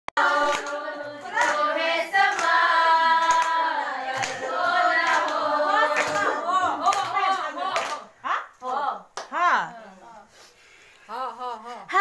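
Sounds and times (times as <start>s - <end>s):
handclaps: 0.2s - 8.1s
women singing together: 0.2s - 9.1s.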